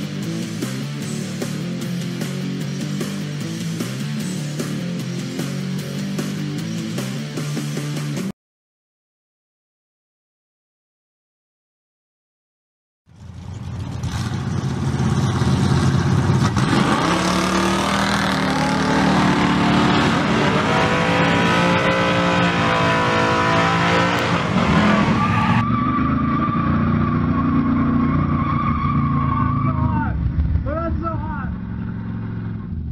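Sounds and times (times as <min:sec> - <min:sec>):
car engine running: 0:13.1 - 0:32.9
drag racing car engines revving: 0:13.2 - 0:32.9.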